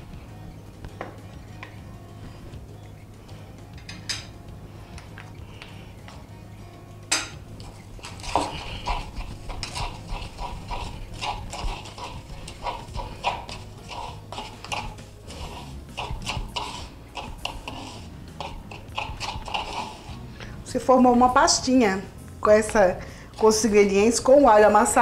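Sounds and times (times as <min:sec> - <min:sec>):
pestle knocking in mortar: 0:08.0 - 0:20.2.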